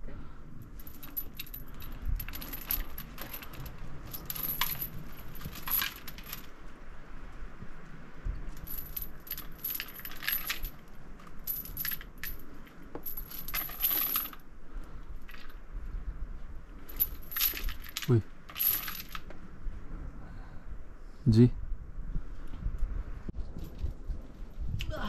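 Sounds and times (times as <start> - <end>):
metal chain clinking against rock: 0.6 - 6.6, 8.5 - 14.5, 15.2 - 15.6, 16.8 - 19.3.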